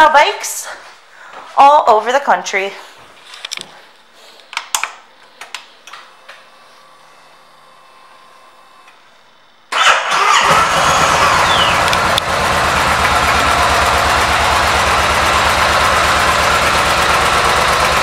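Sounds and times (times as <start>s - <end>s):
motorcycle engine starting and idling: 9.7s - 18.0s
ignition clicks: 11.8s - 12.3s.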